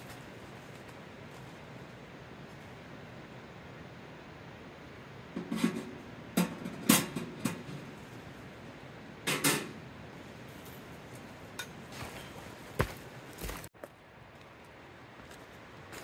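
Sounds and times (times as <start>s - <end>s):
metal stovepipe clanking: 5.4s - 8.0s, 9.2s - 9.8s.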